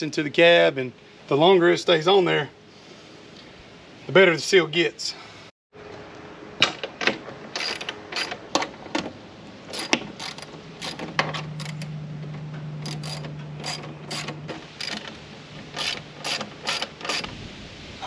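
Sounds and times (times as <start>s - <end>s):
low steady hum: 5.2s - 18.0s
hand ratchet clicking: 9.7s - 11.9s, 12.8s - 17.3s.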